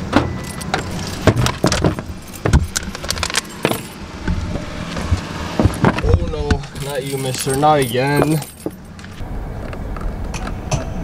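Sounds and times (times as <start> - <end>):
keys jangling: 6.6 - 9.2.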